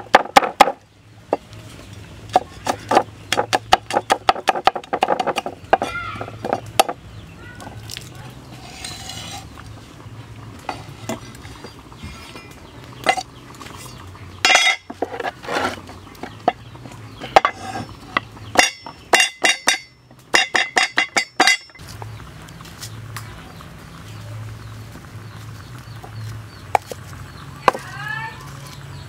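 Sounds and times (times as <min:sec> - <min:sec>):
pestle pounding in wooden mortar: 0:00.0 - 0:01.5, 0:02.2 - 0:07.0, 0:14.4 - 0:21.8.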